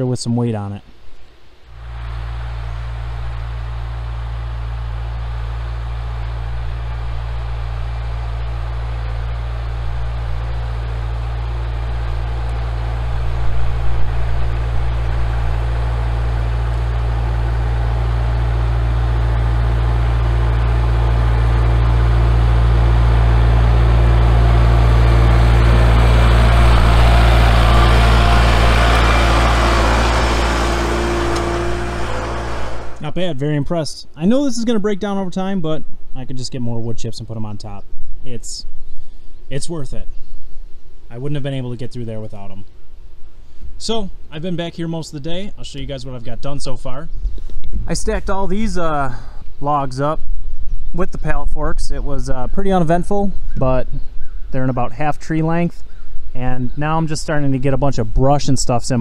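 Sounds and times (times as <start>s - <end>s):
tractor diesel engine passing: 1.8s - 33.2s.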